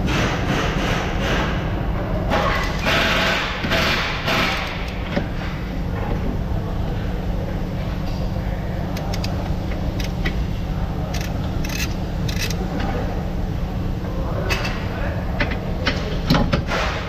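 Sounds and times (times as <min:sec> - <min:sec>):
low workshop hum: 0:00.0 - 0:17.0
ratchet wrench on bolt: 0:02.6 - 0:05.0, 0:09.0 - 0:09.4, 0:10.0 - 0:10.3, 0:11.1 - 0:12.6
short metal clicks: 0:09.0 - 0:09.4, 0:11.1 - 0:12.6.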